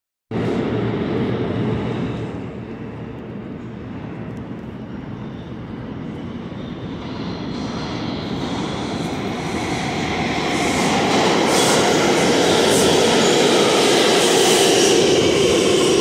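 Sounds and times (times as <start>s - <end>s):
subway train rumbling: 0.3s - 16.0s.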